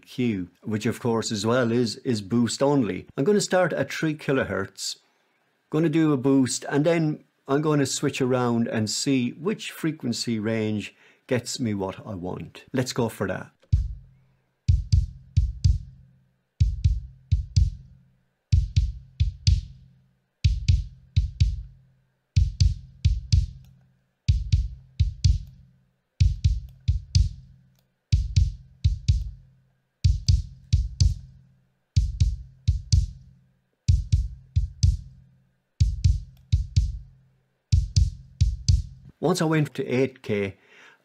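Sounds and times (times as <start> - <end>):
kick drum thumps: 13.7 - 14.1, 14.7 - 16.0, 16.6 - 19.8, 20.4 - 21.8, 22.4 - 23.6, 24.3 - 25.6, 26.2 - 27.5, 28.1 - 29.4, 30.0 - 31.4, 32.0 - 33.3, 33.9 - 35.2, 35.8 - 37.1, 37.7 - 39.1.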